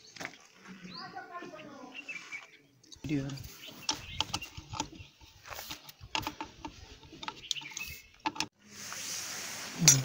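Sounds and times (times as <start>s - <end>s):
steady hiss: 8.6s - 10.0s.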